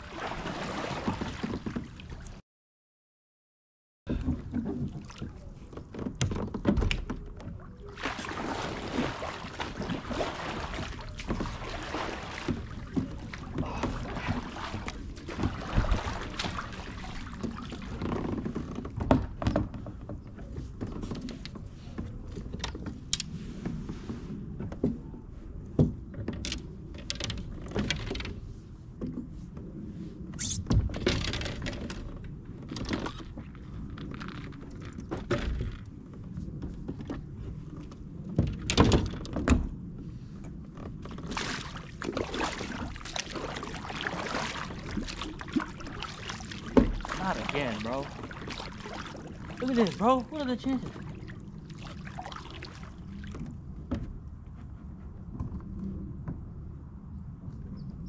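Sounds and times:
water noise: 0:00.0 - 0:02.4, 0:04.1 - 0:54.5
knocks and thumps of gear: 0:05.7 - 0:07.4.

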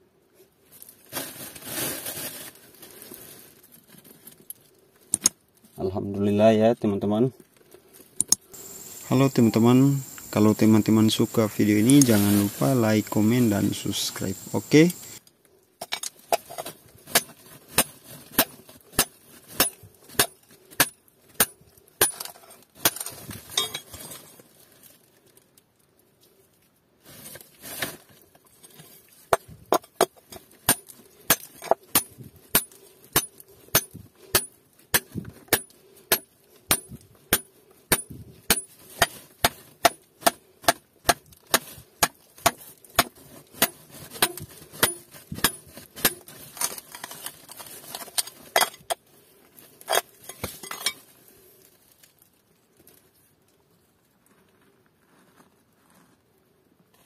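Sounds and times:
hammer striking steel bar on rock: 0:17.8 - 0:22.2, 0:30.7 - 0:46.2.

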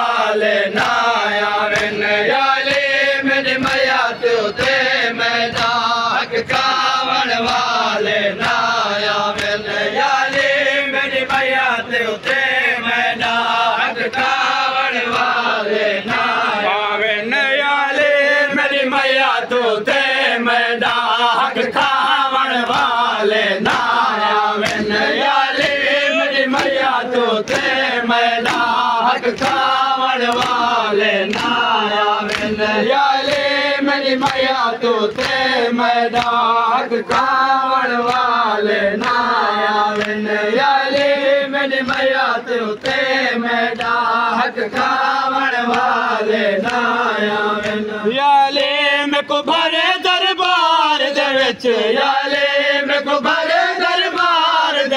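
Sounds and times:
men chanting a lament: 0:00.0 - 0:54.9
chest-beating slaps: 0:00.8 - 0:04.0, 0:24.6 - 0:25.8, 0:28.4 - 0:33.6, 0:47.6 - 0:47.9.

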